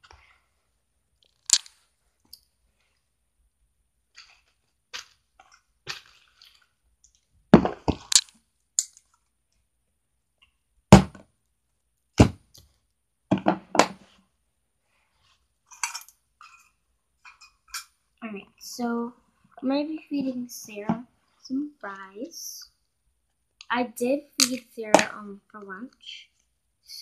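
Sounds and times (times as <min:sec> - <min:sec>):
plastic toys clicking and knocking: 0:07.6 - 0:09.2, 0:24.4 - 0:25.2.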